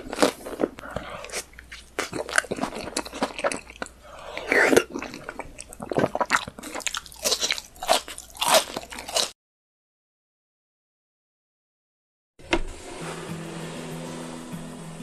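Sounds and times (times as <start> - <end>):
wet chewing and lip-smacking: 0.1 - 9.3
crunchy bites: 6.0 - 9.3.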